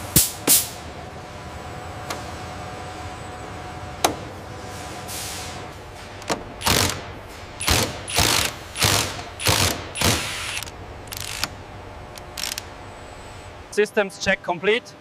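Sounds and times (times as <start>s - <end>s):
steady hum: 0.0s - 15.0s
cordless drills running: 6.6s - 7.0s, 7.6s - 11.5s, 12.2s - 12.6s.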